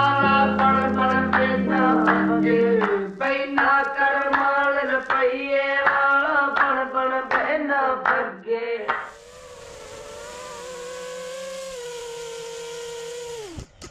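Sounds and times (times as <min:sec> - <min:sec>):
music with singing: 0:00.0 - 0:09.1
steady electric motor whine: 0:08.9 - 0:13.9.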